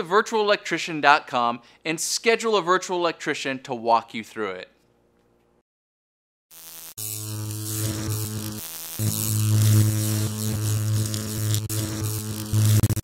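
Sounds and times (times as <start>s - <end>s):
electrical hum and buzz: 6.6s - 13.0s
crackling static: 6.7s - 13.0s.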